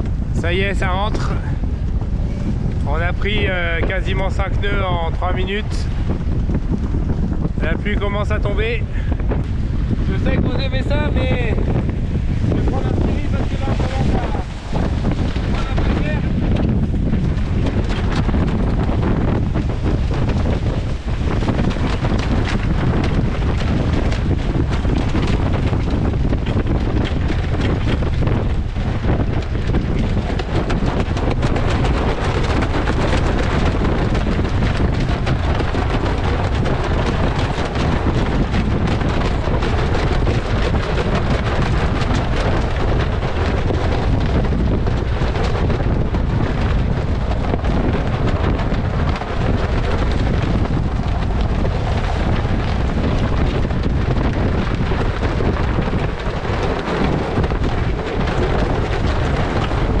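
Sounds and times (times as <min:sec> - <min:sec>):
sea water rushing along hull: 0:00.0 - 1:00.0
strong wind buffeting microphone: 0:00.0 - 1:00.0.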